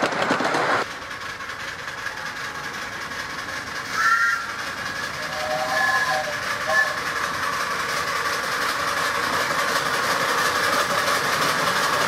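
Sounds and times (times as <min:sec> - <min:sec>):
distant steam locomotive running: 0:00.0 - 0:12.0
two-tone train whistle: 0:03.9 - 0:07.5.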